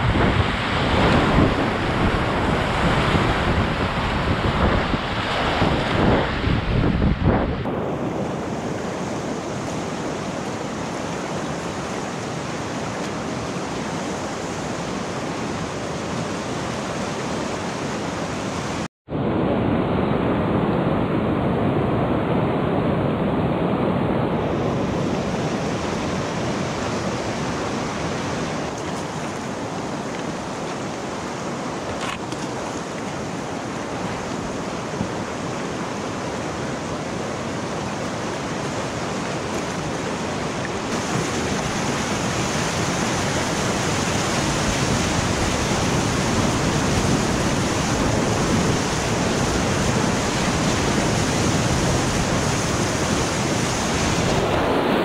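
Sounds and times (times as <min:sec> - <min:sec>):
river rapid rushing: 0:00.0 - 0:18.9, 0:24.8 - 0:55.0.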